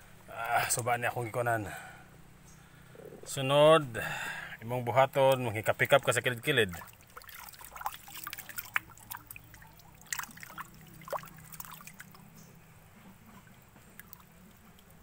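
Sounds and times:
water dripping and plopping: 0:05.3 - 0:12.6, 0:13.4 - 0:15.0.

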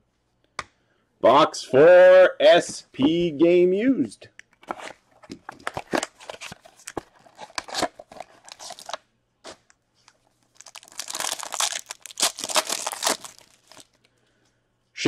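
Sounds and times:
card pack crackles and taps: 0:04.6 - 0:14.1
wrapper tearing and crinkling: 0:05.6 - 0:09.0, 0:10.2 - 0:14.0.

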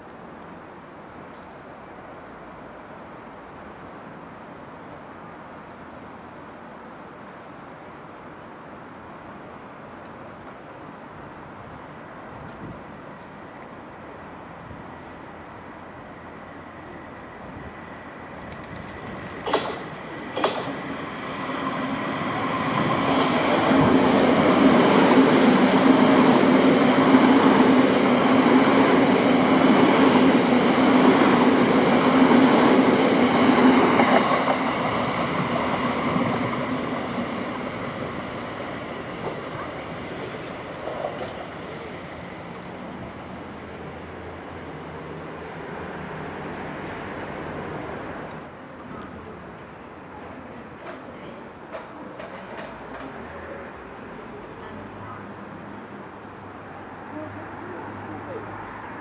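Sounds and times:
train wheel noise: 0:15.9 - 0:44.4, 0:49.3 - 0:54.0.

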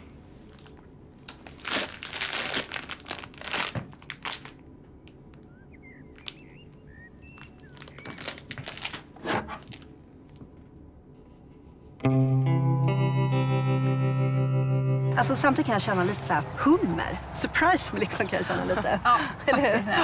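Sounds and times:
plastic bag crinkling: 0:00.4 - 0:04.6, 0:06.1 - 0:06.5, 0:07.2 - 0:10.4.

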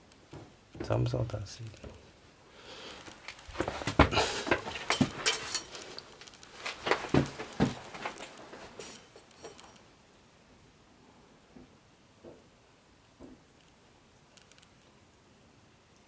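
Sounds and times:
footsteps on gritty cave floor: 0:06.5 - 0:08.8.

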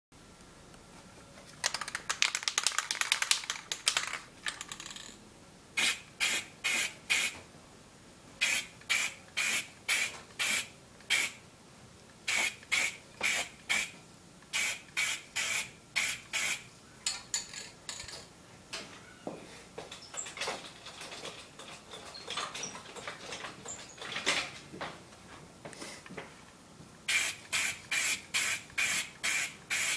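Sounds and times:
spray can ball rattling: 0:01.6 - 0:05.2, 0:12.3 - 0:13.9, 0:27.1 - 0:29.9
spray can hissing bursts: 0:05.8 - 0:07.4, 0:08.4 - 0:11.4, 0:12.3 - 0:16.7, 0:27.1 - 0:29.9.

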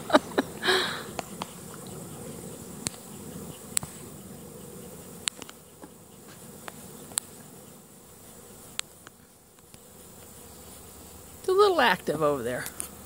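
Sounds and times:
honeybees buzzing: 0:00.0 - 0:13.0
sharp ticks: 0:01.1 - 0:04.0, 0:04.6 - 0:05.9, 0:06.6 - 0:07.3.

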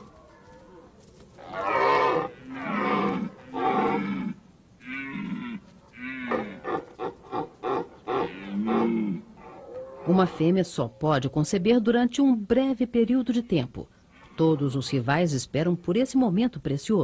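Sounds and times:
deer stag roaring: 0:00.0 - 0:11.8.

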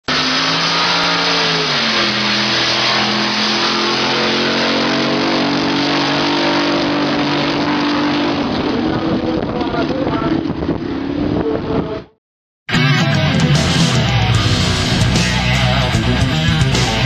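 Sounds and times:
boat engine running at high revs: 0:00.0 - 0:12.2.

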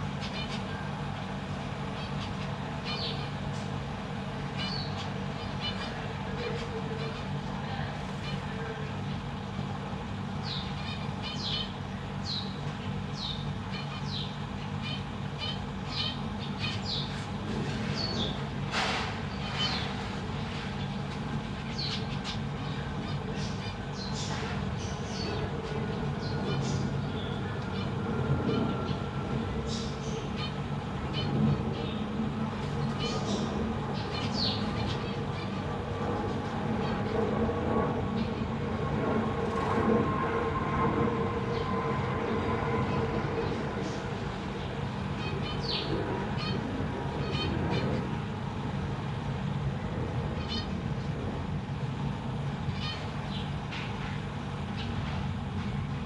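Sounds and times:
rumbling background noise: 0:00.0 - 0:56.0
steady low hum: 0:00.0 - 0:56.0
finches chirping: 0:01.8 - 0:03.4, 0:04.4 - 0:08.7, 0:10.3 - 0:17.2, 0:17.8 - 0:18.4, 0:20.8 - 0:32.1, 0:32.7 - 0:35.9, 0:41.5 - 0:48.1, 0:50.4 - 0:50.7.

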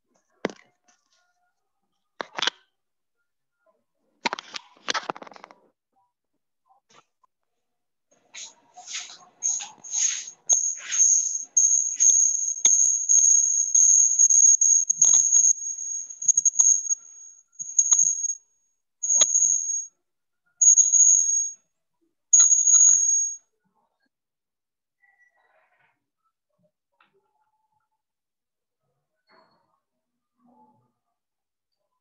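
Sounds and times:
high-pitched whine: 0:09.4 - 0:18.4
sharp clicks and knocks: 0:10.5 - 0:18.4.

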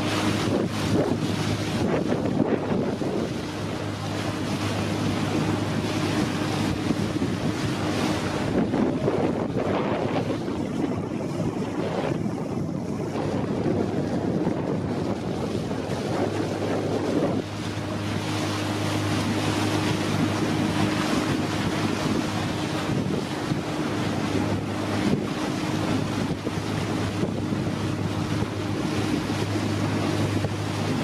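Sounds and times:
boat motor humming: 0:00.0 - 0:31.0
water rushing past hull: 0:00.0 - 0:31.0
wind buffeting microphone: 0:00.0 - 0:31.0.

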